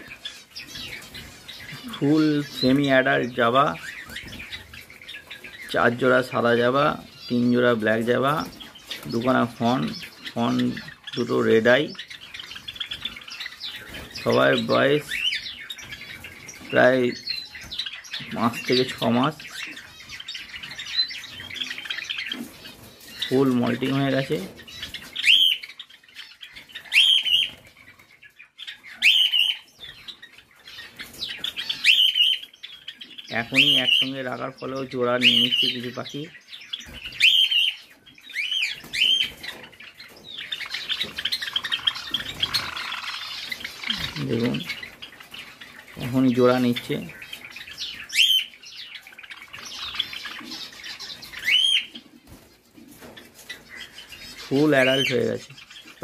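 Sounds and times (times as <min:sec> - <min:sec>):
rising-and-falling bird calls: 0:00.0 - 0:56.0
sparrows chirping: 0:00.0 - 0:56.0
wings fluttering: 0:38.6 - 0:48.2.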